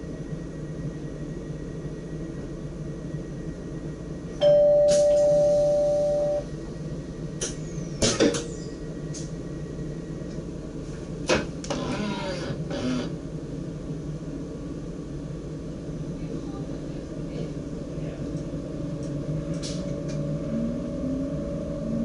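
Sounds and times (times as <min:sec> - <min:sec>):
moving train rumble: 0:00.0 - 0:22.0
two-tone electronic warning signal: 0:04.4 - 0:06.5.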